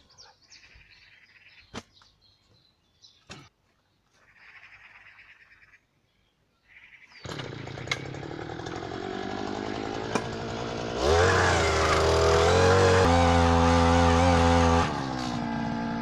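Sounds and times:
two-stroke engine running: 7.2 - 16.0.

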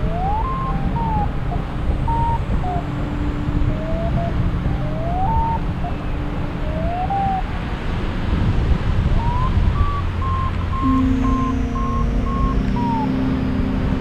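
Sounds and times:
steady low tone: 0.0 - 14.0
wind on microphone: 0.0 - 14.0
short high beeps: 10.7 - 13.8
rising electronic tone: 10.7 - 14.0.

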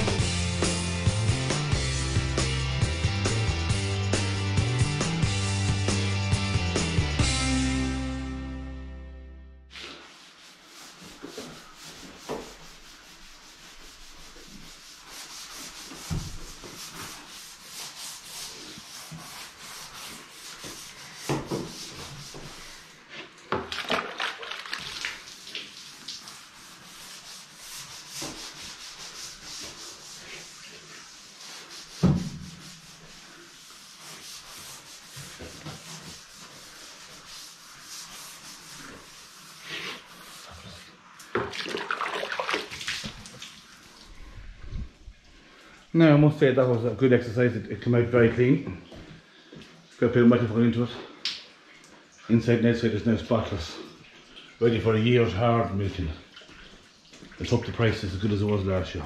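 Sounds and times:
brush scrubbing metal tank: 0.0 - 7.4, 9.7 - 45.4.

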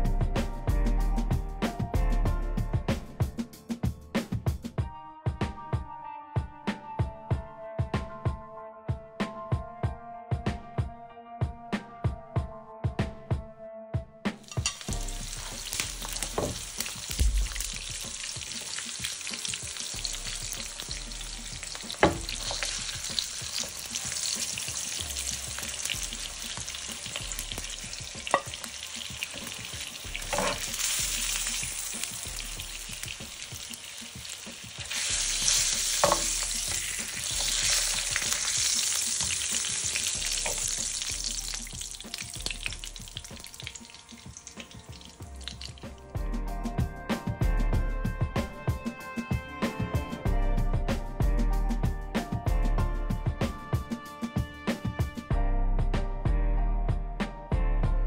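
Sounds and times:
pork sizzling in hot fat: 14.4 - 46.1
tongs clicking against pan: 14.5 - 15.0.

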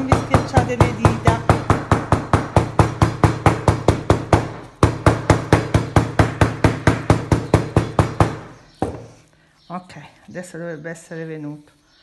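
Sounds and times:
mallet pounding on tabletop: 0.0 - 9.1.

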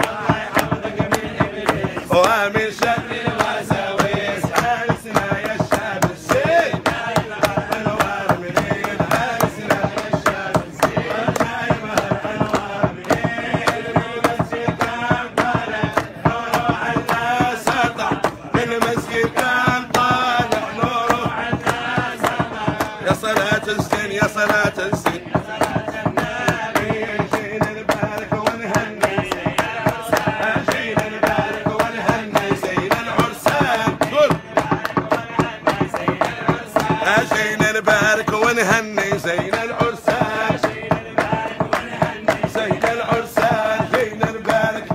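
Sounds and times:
fast percussion beat: 0.0 - 44.9
men singing together: 0.0 - 44.9.

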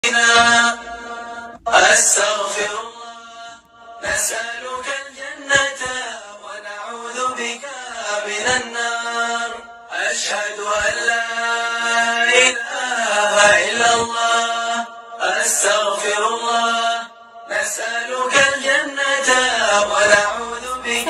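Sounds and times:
person chanting: 15.2 - 21.0.

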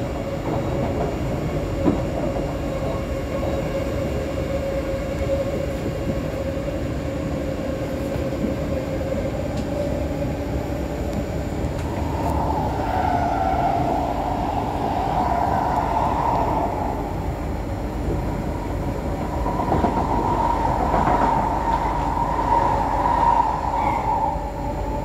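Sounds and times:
passing train: 0.0 - 25.0
train wheels rumbling on rails: 0.0 - 25.0
faint hum: 9.5 - 25.0.

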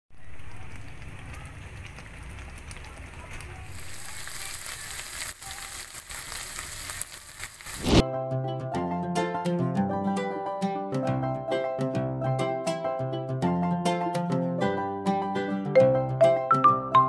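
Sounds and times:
meat sizzling in oil: 0.1 - 8.0
sauce bubbling in a pan: 0.1 - 8.0
plucked-string music: 8.0 - 17.0.

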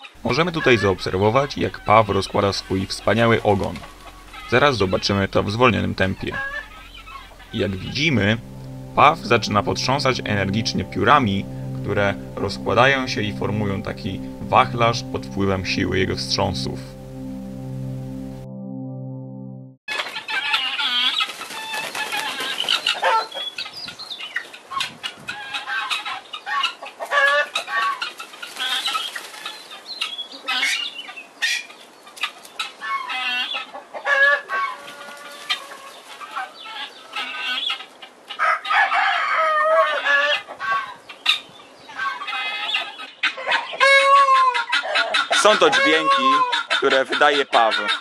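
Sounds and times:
peacock calls: 0.4 - 8.3, 41.9 - 48.0
peacock feathers rustling: 21.0 - 22.8, 28.1 - 29.7
rooster crowing: 38.4 - 40.3
chickens clucking: 39.9 - 48.0.

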